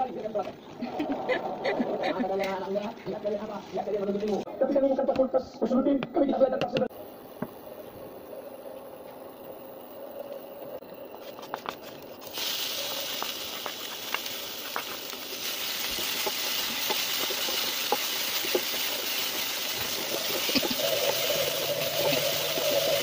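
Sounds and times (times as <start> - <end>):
food sizzling in hot oil: 12.2 - 23.0.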